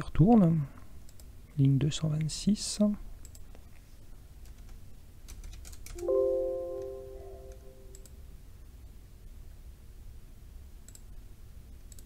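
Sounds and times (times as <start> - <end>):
system alert chime: 6.0 - 8.0.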